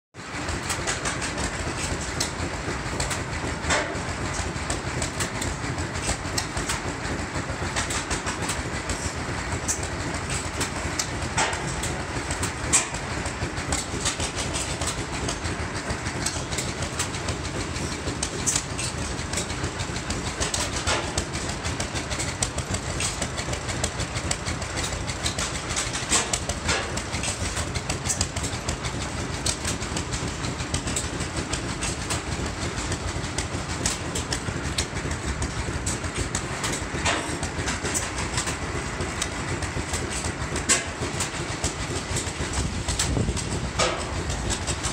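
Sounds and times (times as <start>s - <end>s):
old gas engines chuffing: 0.2s - 44.9s
sharp mechanical clicks: 9.6s - 44.9s.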